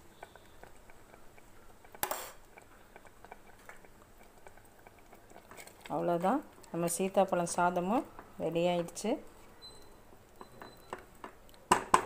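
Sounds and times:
rice simmering ticks: 0.0s - 9.0s, 9.7s - 11.7s.

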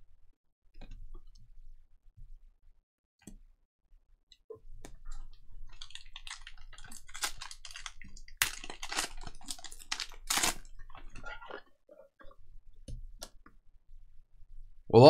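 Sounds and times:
foil wrapper crinkling and tearing: 5.6s - 11.5s.

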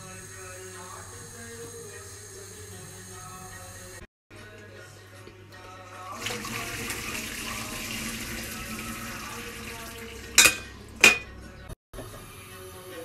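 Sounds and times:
water pouring into colander: 6.1s - 11.2s
metal pan clanking: 10.4s - 11.4s.

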